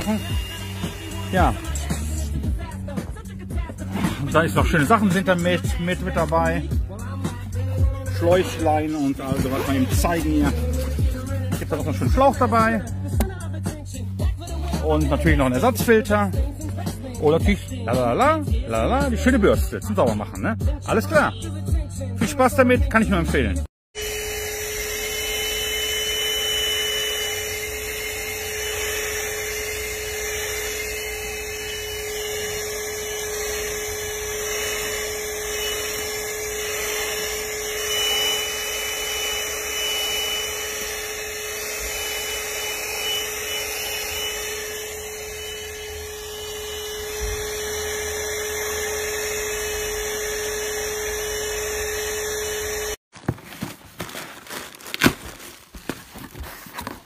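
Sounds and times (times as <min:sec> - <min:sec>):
handheld vacuum whining: 0:00.0 - 0:13.4, 0:23.9 - 0:53.7, 0:54.6 - 0:57.0
cardboard packaging clicks and knocks: 0:53.1 - 0:57.0.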